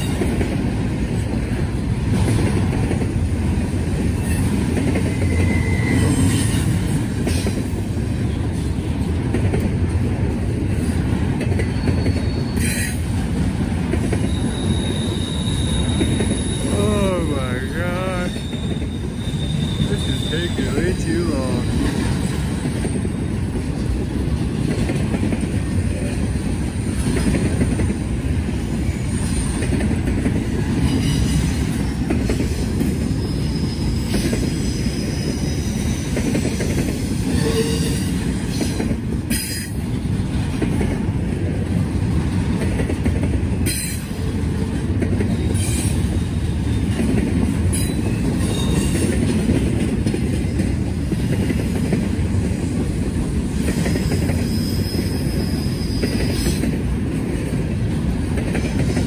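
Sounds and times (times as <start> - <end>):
train wheels rumbling on rail: 0.0 - 59.0
wheels squealing: 4.2 - 6.9, 11.6 - 13.0, 14.2 - 16.9, 18.2 - 21.0, 47.7 - 49.1.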